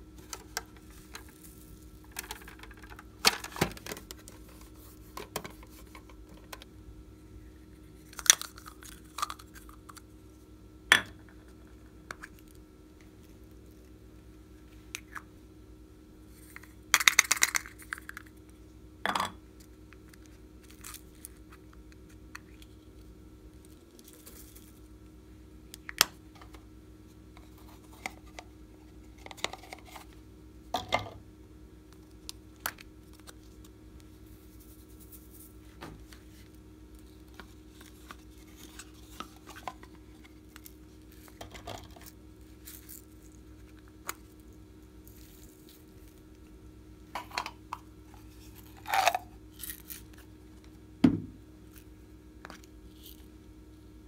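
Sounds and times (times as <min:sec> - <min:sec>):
faint steady hum: 0:00.0 - 0:54.0
plastic containers clicking and rattling: 0:02.1 - 0:04.4.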